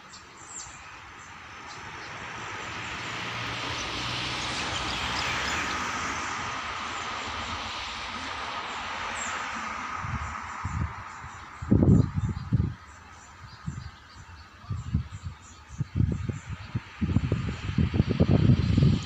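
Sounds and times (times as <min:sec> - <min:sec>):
train rolling and rail noise: 0:00.7 - 0:11.3.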